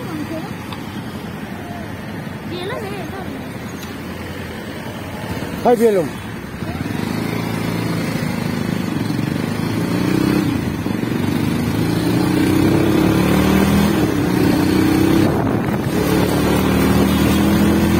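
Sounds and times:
road and wind noise: 0:00.0 - 0:17.9
small motorbike engine accelerating: 0:06.6 - 0:17.9.

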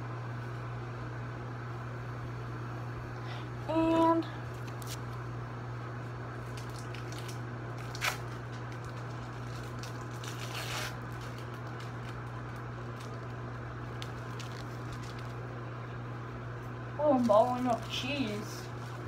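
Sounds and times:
microwave oven humming: 0:00.0 - 0:19.0
plastic crinkling: 0:04.5 - 0:05.2, 0:06.4 - 0:15.5, 0:17.1 - 0:19.0.

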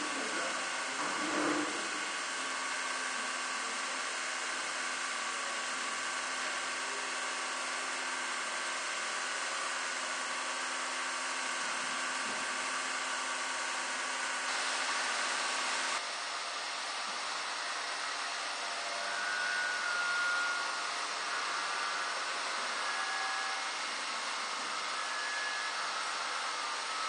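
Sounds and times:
electric appliance motors droning: 0:00.0 - 0:27.0
hum and whine tones: 0:18.8 - 0:27.0.

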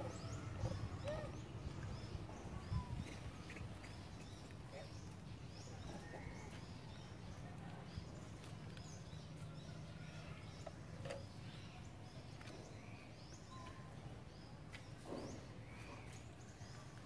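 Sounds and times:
bird chirps: 0:08.0 - 0:16.9.

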